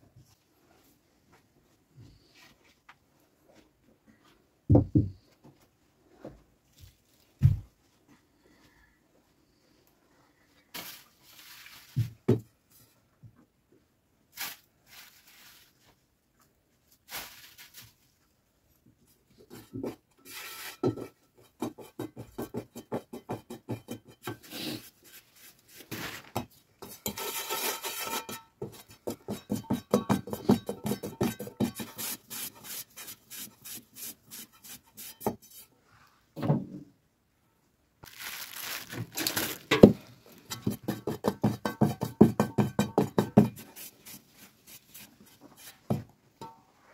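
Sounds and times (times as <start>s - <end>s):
plastic bag rustling: 10.7s - 12.2s, 14.3s - 16.0s, 16.9s - 18.2s, 25.8s - 26.4s, 38.0s - 40.6s
hands kneading soft dough: 38.0s - 41.2s.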